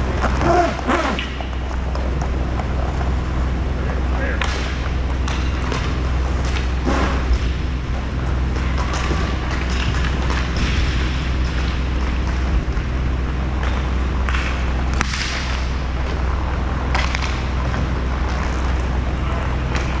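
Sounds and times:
roller skates rolling and scraping: 0.0 - 20.0
hockey stick clacking puck: 4.4 - 7.2, 13.6 - 15.7.

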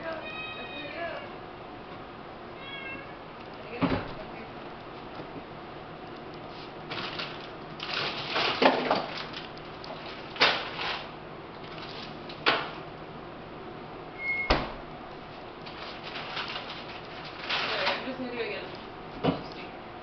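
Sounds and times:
items shuffled in refrigerator: 6.5 - 12.3, 15.6 - 19.6
refrigerator door thudding shut: 14.4 - 14.9.

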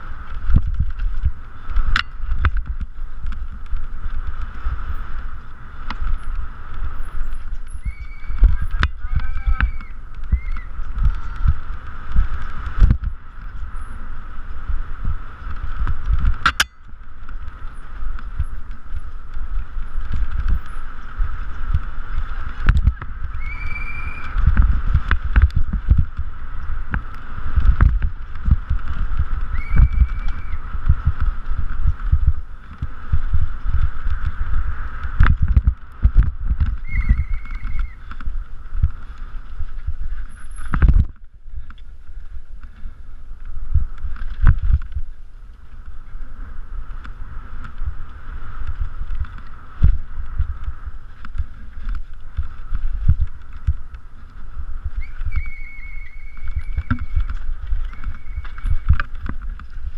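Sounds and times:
mountain bike rattling over bumps: 0.0 - 59.9
wind on microphone: 0.0 - 59.9
short high squeals: 7.7 - 10.7, 55.0 - 57.2.

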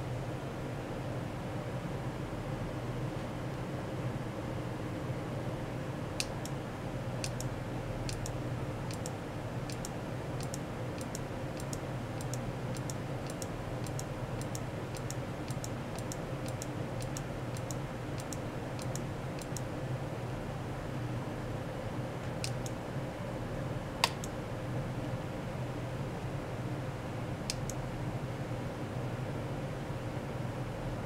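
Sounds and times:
steady low hum: 0.0 - 31.0
computer mouse clicks: 6.2 - 6.6, 7.2 - 7.5, 8.1 - 19.7, 22.4 - 22.8, 24.0 - 24.4, 27.5 - 27.8.

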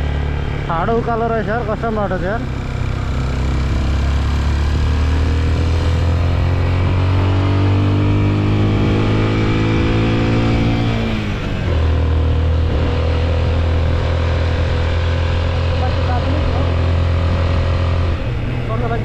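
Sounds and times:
motorcycle engine running: 0.0 - 19.0.

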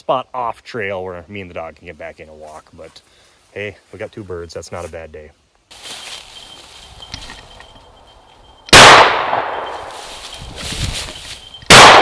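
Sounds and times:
shotgun blast: 8.7 - 9.7, 11.7 - 12.0.

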